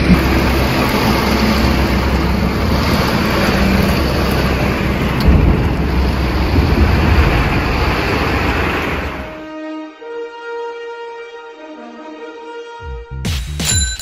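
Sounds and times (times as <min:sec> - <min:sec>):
deep thunder rumble: 0:00.0 - 0:09.4
torrential rain: 0:00.0 - 0:09.5.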